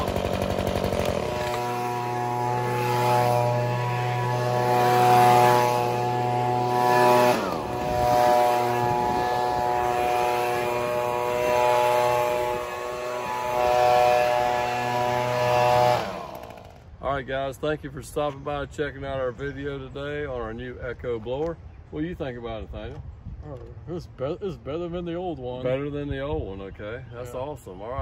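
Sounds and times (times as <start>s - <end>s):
leaf blower engine: 0.0s - 17.0s
air rushing from blower tube: 1.5s - 16.6s.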